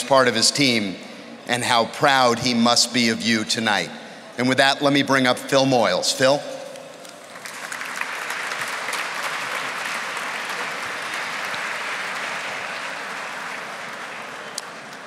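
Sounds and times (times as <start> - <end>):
audience applauding: 7.0 - 15.0.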